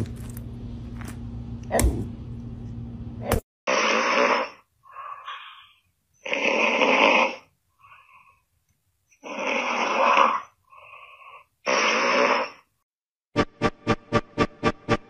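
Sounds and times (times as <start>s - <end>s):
cat snoring: 6.2s - 7.5s, 9.2s - 12.6s.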